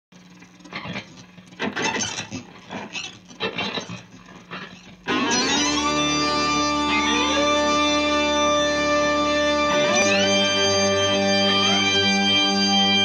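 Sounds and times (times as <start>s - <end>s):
lead guitar note bending upward: 5.1s - 13.0s.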